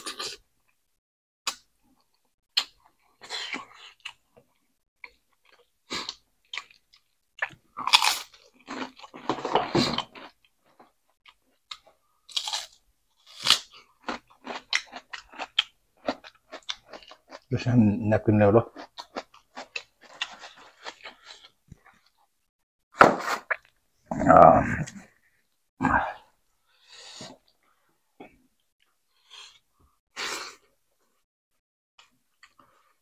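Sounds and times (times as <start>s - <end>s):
crunching and chewing fish: 4.1s - 17.5s, 18.7s - 22.2s.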